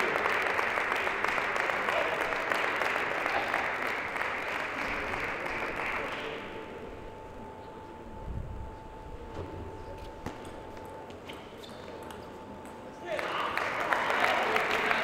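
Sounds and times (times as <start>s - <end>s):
audience applauding: 0.0s - 6.5s, 13.1s - 15.0s.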